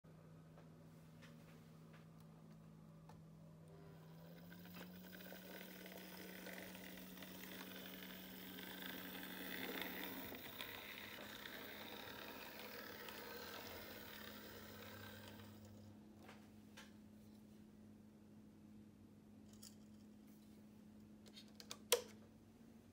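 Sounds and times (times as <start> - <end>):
steady low hum: 0.1 - 21.2
model train whirring and rolling: 3.8 - 15.9.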